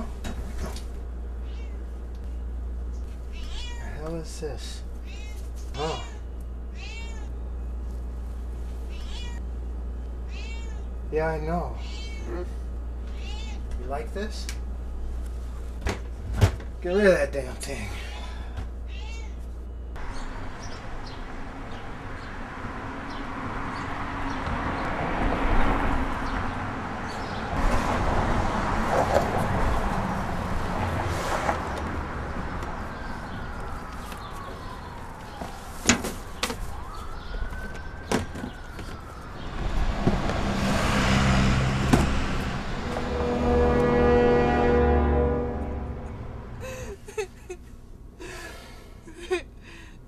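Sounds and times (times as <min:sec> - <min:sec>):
outdoor background noise: 0:00.0 - 0:50.0
long wailing tones: 0:41.3 - 0:47.0.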